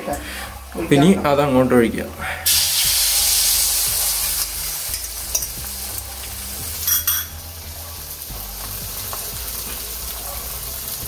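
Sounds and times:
omelette sizzling in oil: 2.4s - 11.0s.

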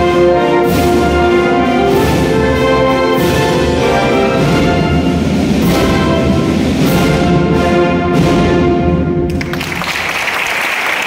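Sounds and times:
wind band playing march: 0.0s - 9.6s
applause: 9.3s - 11.0s.

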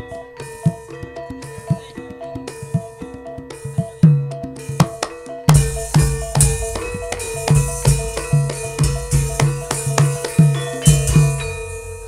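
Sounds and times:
bronze metallophone and gong tones: 0.0s - 12.0s
deep drum strokes: 5.5s - 11.9s.

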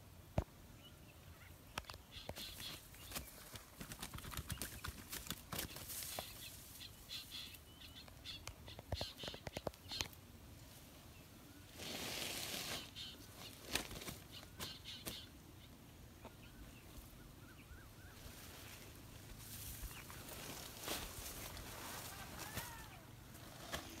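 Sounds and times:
rustling of grass and leaves: 1.4s - 24.0s
fish flapping in grass: 3.1s - 6.4s.

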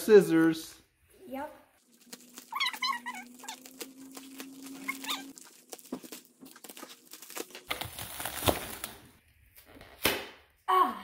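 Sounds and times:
plastic envelope tearing: 1.8s - 9.2s
scissors snipping plastic envelope: 2.0s - 9.1s.

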